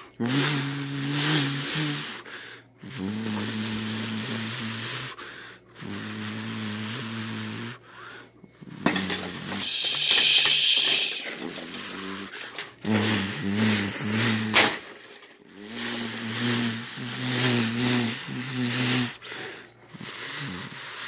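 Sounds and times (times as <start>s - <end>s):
hissing with rapid clicks: 8.6s - 19.2s.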